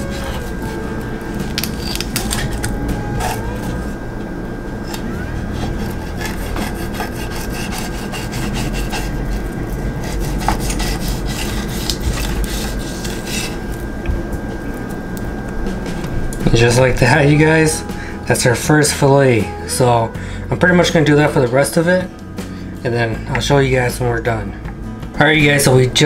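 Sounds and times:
knife scraping fish on board: 5.7 - 9.4, 10.0 - 13.6.

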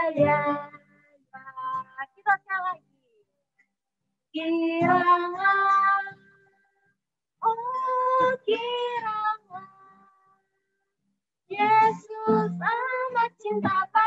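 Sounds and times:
woman and girl singing: 0.0 - 0.8, 1.4 - 2.8, 4.4 - 6.2, 7.4 - 10.2, 11.5 - 14.0.

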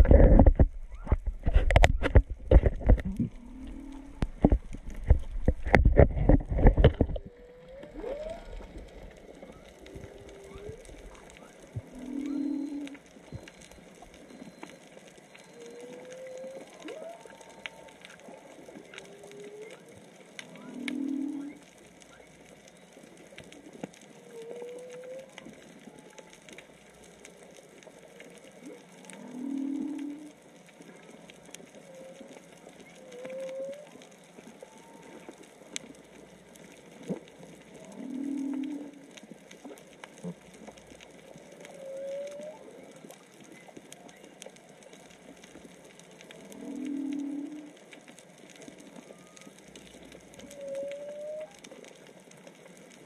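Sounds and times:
faint clicks: 0.0 - 53.0
whale low moan: 2.6 - 4.6, 6.1 - 13.4, 15.6 - 19.8, 20.4 - 21.6, 24.2 - 26.6, 28.6 - 30.4, 31.8 - 35.8, 37.6 - 39.2, 41.4 - 43.2, 46.2 - 47.8, 48.7 - 51.9
rising whale notes: 2.9 - 5.4, 6.2 - 14.8, 15.4 - 19.8, 20.4 - 22.3, 28.6 - 30.4, 31.8 - 35.7, 37.6 - 39.1, 41.3 - 44.3, 46.3 - 47.9, 48.7 - 51.8.

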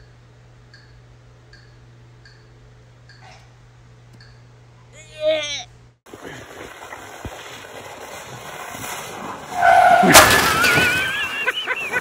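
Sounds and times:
person yelling: 4.9 - 5.8
plastic sled sliding on snow: 6.1 - 12.0.

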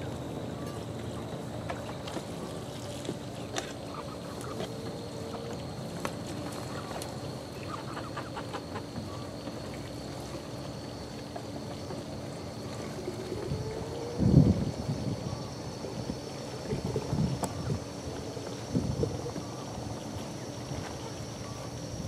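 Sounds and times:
steady background hum: 0.0 - 22.0
young chickens clucking and peeping: 6.5 - 9.8.

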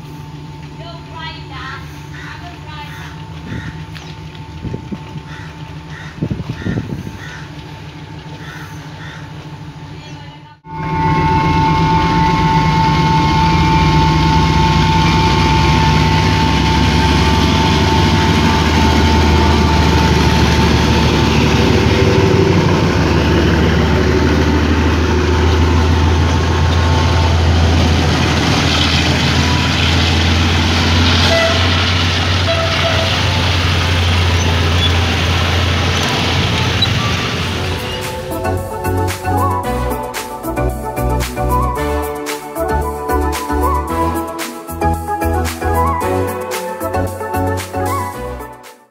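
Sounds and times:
diesel locomotive engine drone: 0.0 - 48.6
high steady whine: 10.5 - 32.6, 33.2 - 47.4.

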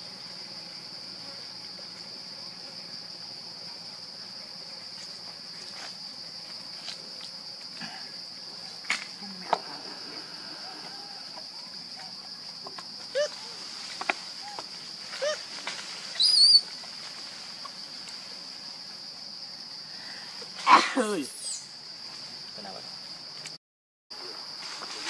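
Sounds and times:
high-pitched insect drone: 18.2 - 23.4.

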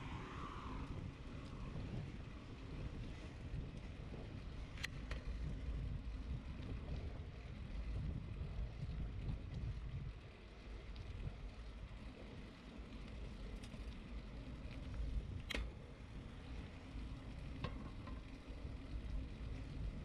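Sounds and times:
wind on microphone: 0.0 - 10.4
bicycle tyres hissing: 0.0 - 20.0.

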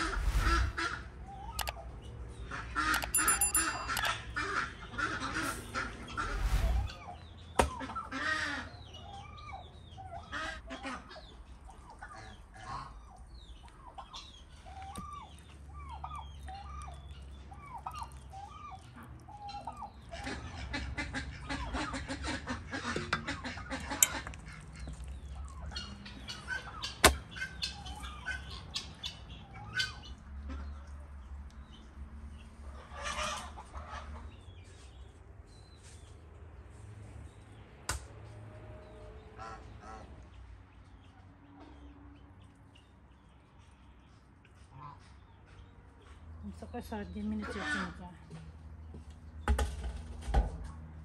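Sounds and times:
poultry clucking: 2.4 - 31.1, 32.4 - 35.0, 39.3 - 42.0, 43.6 - 46.2, 47.1 - 48.4.

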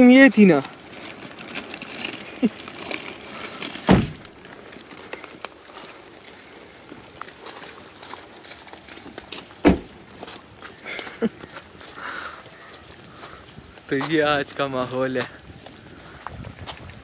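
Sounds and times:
dull thumps: 3.9 - 4.2.

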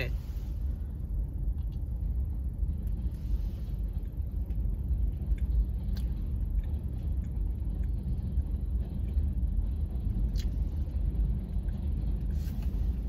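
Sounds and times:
car idling: 0.0 - 13.0
chewing clicks: 4.0 - 9.3.

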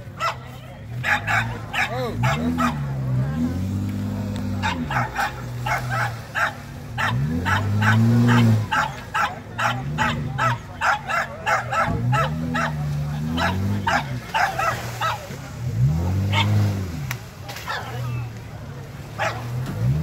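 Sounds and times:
car engine revving: 0.0 - 20.0
dog barking rapidly: 0.1 - 2.9, 4.5 - 15.3, 16.3 - 16.6, 17.6 - 18.0, 19.2 - 19.5.

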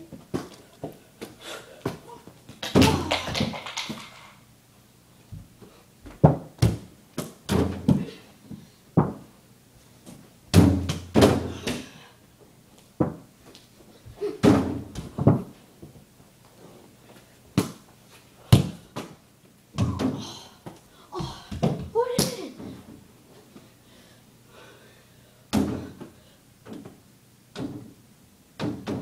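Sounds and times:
basketball thuds and bangs: 6.1 - 8.1, 10.5 - 11.8, 14.4 - 15.5, 25.5 - 26.0, 28.6 - 29.0.

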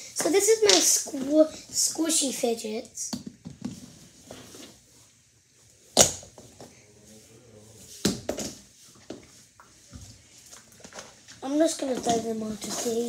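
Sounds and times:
objects knocking and thudding: 3.1 - 4.0, 8.0 - 9.3.

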